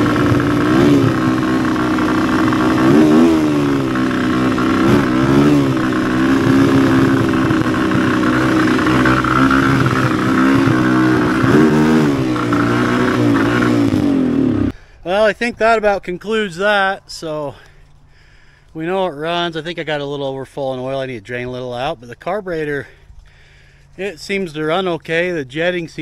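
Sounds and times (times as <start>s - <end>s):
motorcycle engine revving: 0.0s - 14.8s.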